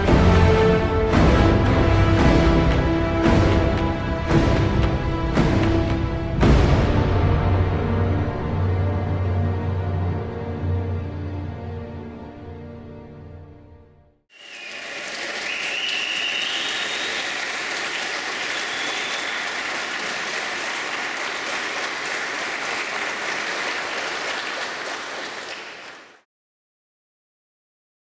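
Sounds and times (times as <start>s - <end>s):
crowd applauding: 14.3s - 26.2s.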